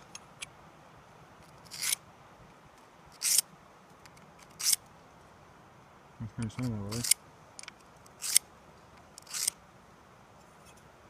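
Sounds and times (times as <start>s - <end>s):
router bit rasping on diamond whetstone: 9.2s - 9.5s.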